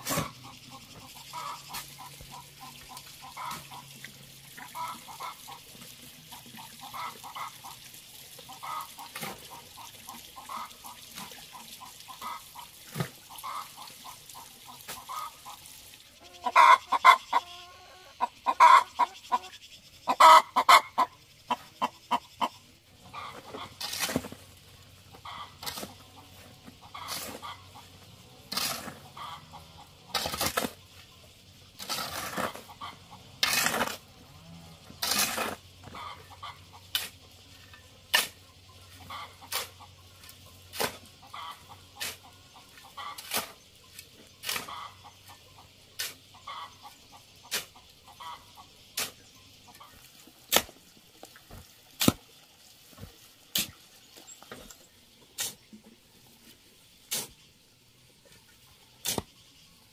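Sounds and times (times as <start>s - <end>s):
hoe scraping through cement mix: 0.0s - 0.5s, 23.2s - 24.5s, 25.3s - 30.9s, 31.7s - 36.2s, 36.9s - 39.8s, 40.7s - 41.1s, 43.0s - 45.0s, 46.0s - 46.2s, 52.9s - 53.8s, 55.4s - 55.8s, 57.0s - 57.4s, 59.0s - 59.3s.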